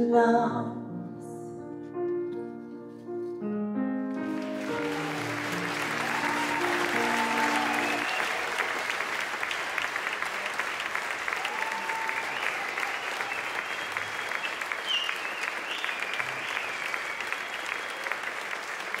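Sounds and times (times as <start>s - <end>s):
audience applauding: 4.1s - 19.0s.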